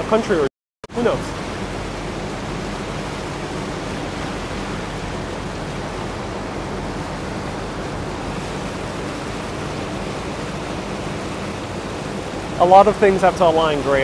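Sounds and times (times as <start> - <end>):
faint low engine hum: 0.0 - 14.0
water rushing: 0.0 - 14.0.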